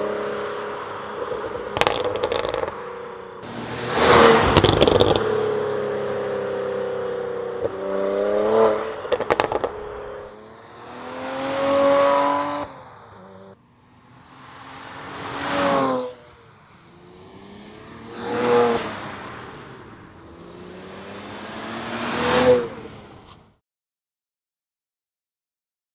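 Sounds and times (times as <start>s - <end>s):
exhaust pops and crackles: 1.7s - 2.8s, 4.4s - 5.4s, 9.1s - 9.7s
car engine accelerating past: 3.4s - 23.4s.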